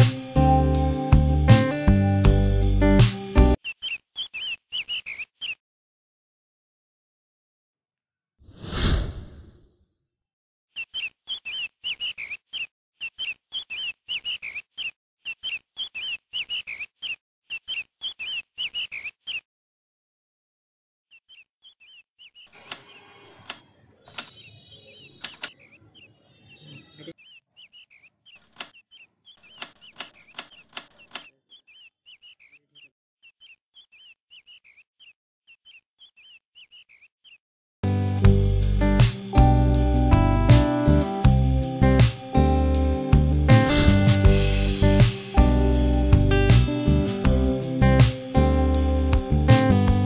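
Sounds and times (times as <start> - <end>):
rapid high chick peeping: 3.6 - 5.6, 10.8 - 19.4, 21.1 - 37.4
toy chickens clicking on concrete: 25.2 - 25.6, 29.4 - 31.4.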